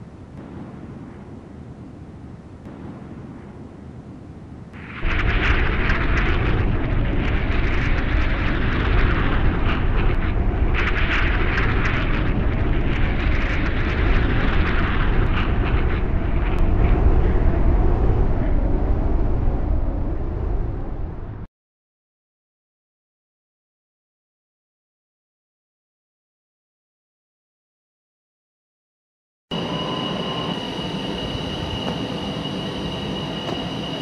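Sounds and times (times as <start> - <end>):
deep rumbling roar with crackling hiss: 3.6 - 21.5.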